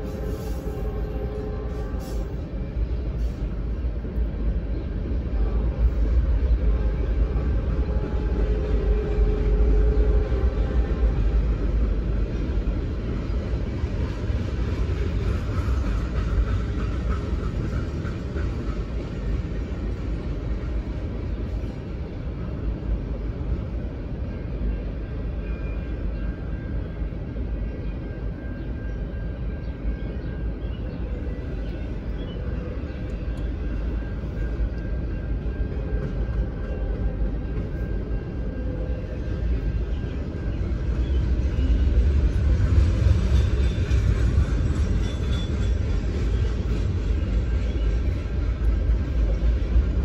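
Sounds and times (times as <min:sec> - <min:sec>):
train wheels rumbling on rail: 0:00.0 - 0:50.0.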